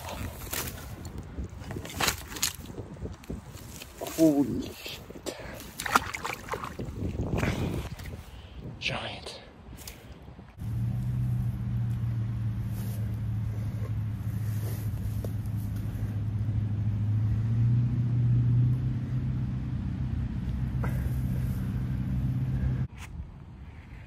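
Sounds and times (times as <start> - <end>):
low motor hum: 10.5 - 22.9.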